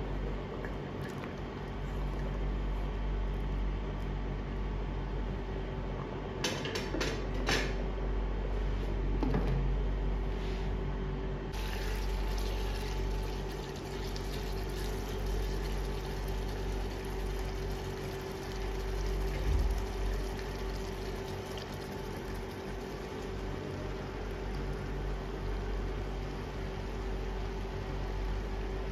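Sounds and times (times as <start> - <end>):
gravy bubbling in pan: 11.5 - 28.9
rice boiling in water: 11.5 - 28.9.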